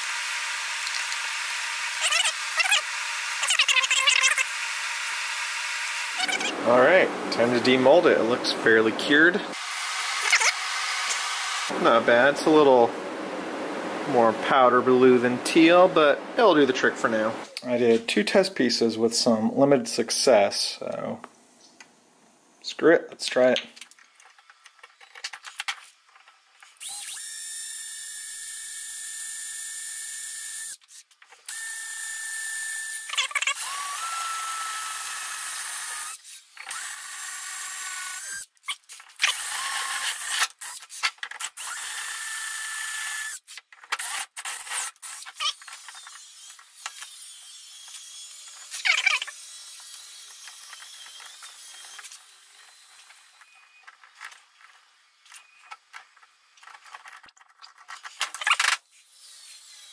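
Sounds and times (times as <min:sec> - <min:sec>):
cordless drill whining: 0:31.5 - 0:38.5.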